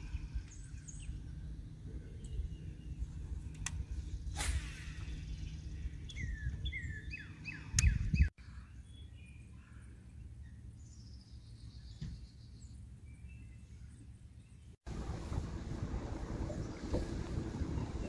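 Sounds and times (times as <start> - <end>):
songbirds chirping: 0.0 - 15.2
brief low rumble: 14.9 - 18.0.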